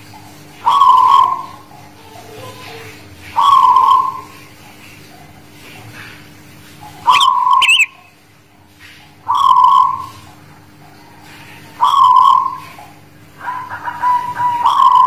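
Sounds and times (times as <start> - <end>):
dove cooing: 0.6 - 4.6, 7.0 - 8.0, 9.3 - 15.0
short rolling bird notes: 7.1 - 8.1.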